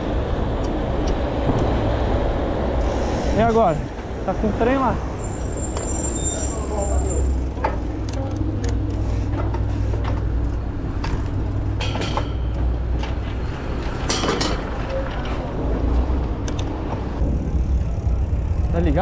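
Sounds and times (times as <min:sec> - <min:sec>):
street traffic noise: 0:00.0 - 0:19.0
bike clicks and rattles: 0:07.5 - 0:19.0.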